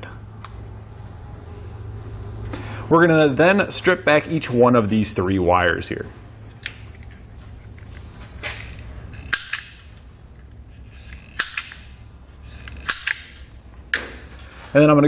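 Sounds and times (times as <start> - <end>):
low steady hum: 0.0 - 15.0
wire stripper snapping: 8.4 - 14.2.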